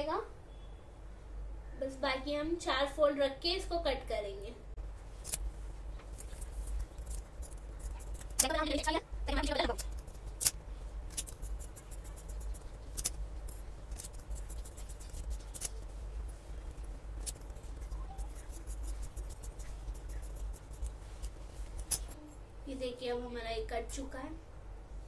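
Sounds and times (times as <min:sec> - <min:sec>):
scissors snipping fabric: 0:05.2 - 0:05.4, 0:06.2 - 0:08.8, 0:09.7 - 0:15.8, 0:16.8 - 0:22.2.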